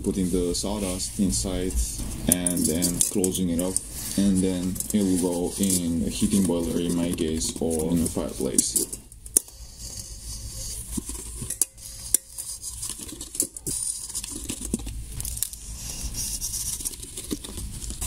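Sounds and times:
card scraping against pot rim: 0.8 - 18.0.

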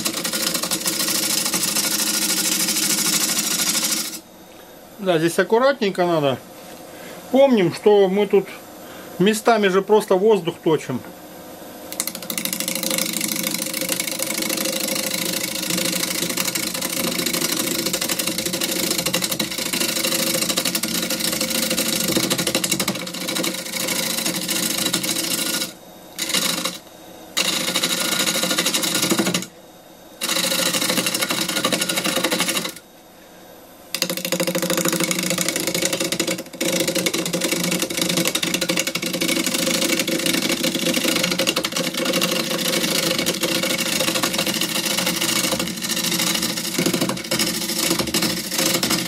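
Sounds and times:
gouge chattering on lathe wood: 0.0 - 4.2, 11.9 - 26.8, 27.4 - 29.5, 30.2 - 32.8, 34.0 - 49.0
lathe running hum: 0.0 - 5.6, 11.2 - 32.9, 33.7 - 49.0.

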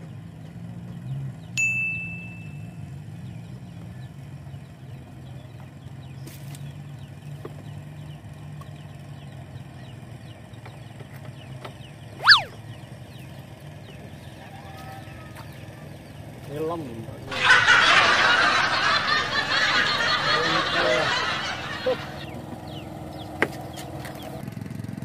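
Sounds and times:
bell-like ding: 1.6 - 2.7
swooping squeal: 12.2 - 12.6
low motor drone: 17.3 - 23.3.

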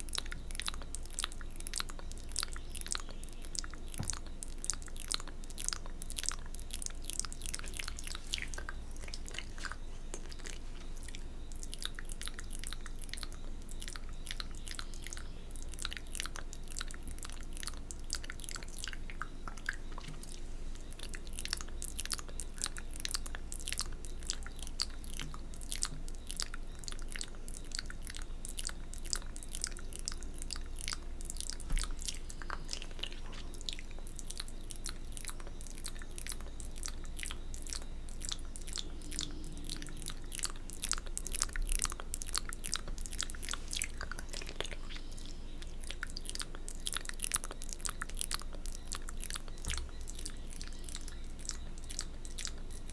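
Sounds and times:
wet mouth licking and smacking: 0.0 - 52.9.

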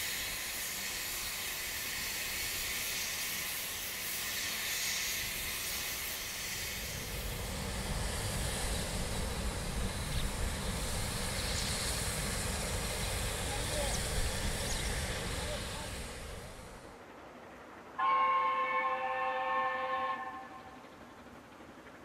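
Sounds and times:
steam hissing: 0.0 - 16.9
low uneven rumble: 6.5 - 18.0.

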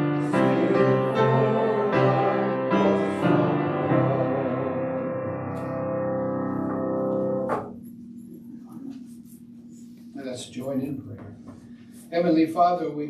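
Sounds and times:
piano playing a hymn: 0.0 - 7.8.

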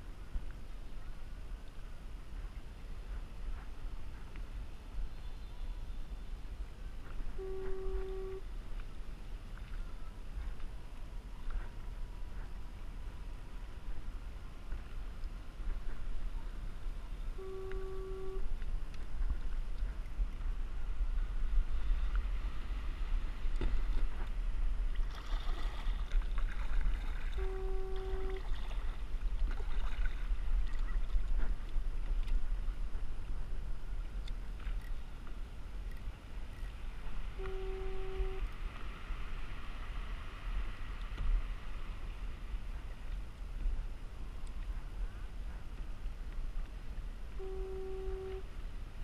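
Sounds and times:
water sloshing and paddling: 0.0 - 48.9
steady low rumble: 0.0 - 49.0
electronic tones: 7.4 - 8.4, 17.4 - 18.4, 47.4 - 48.4.

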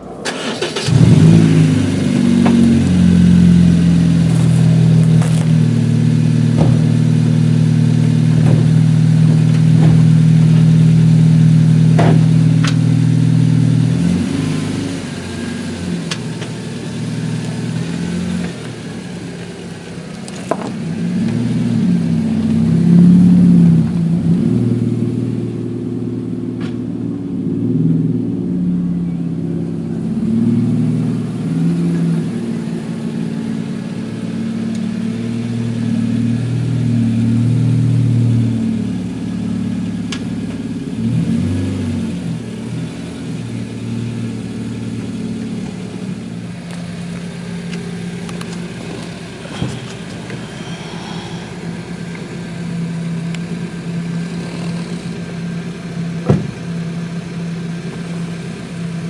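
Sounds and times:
car engine through exhaust: 0.0 - 59.0.

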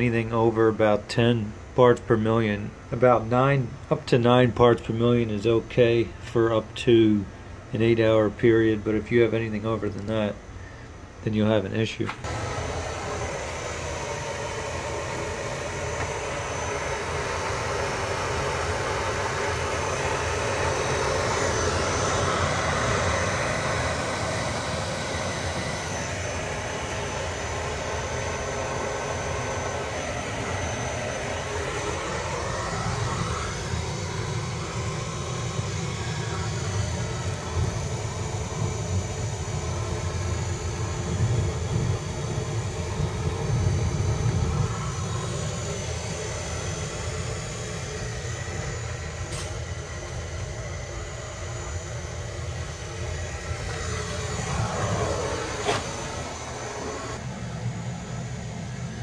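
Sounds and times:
furnace burner roaring: 12.0 - 59.0.

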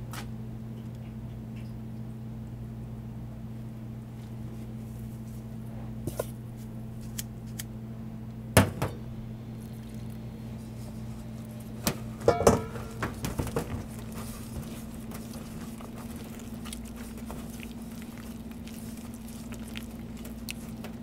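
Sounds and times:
steady low hum: 0.0 - 21.0
hand working water into starch: 9.7 - 21.0
metal bowl knocking and clattering: 12.2 - 13.9.

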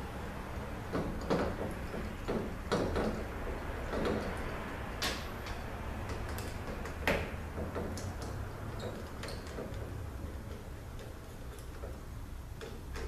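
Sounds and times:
metal parts clicking and tapping: 5.0 - 13.0.

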